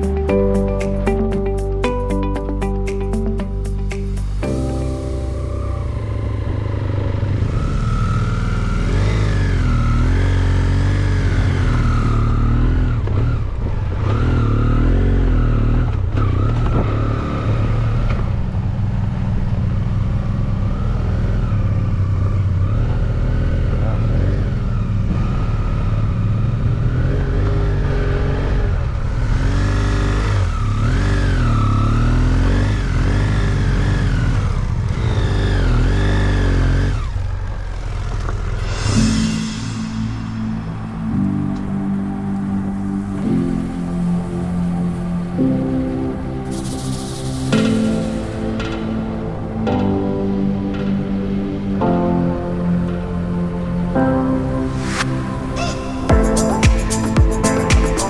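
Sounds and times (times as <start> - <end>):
motorcycle engine revving: 4.2 - 41.8.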